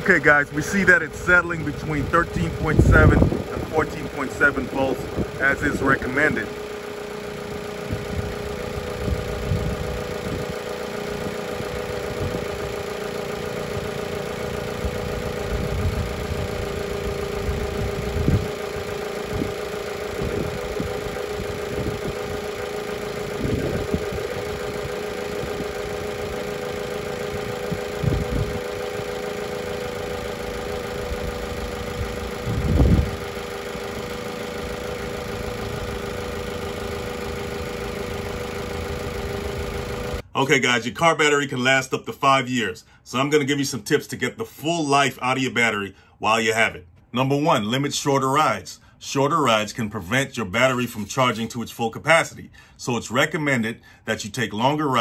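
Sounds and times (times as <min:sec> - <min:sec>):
car engine idling: 0:00.0 - 0:40.5.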